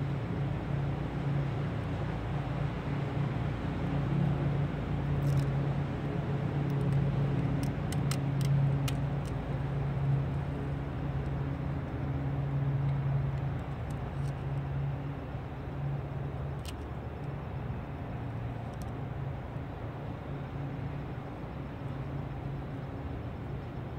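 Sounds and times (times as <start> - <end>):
low mechanical hum: 0.0 - 23.9
faint sharp clicks: 6.6 - 9.5.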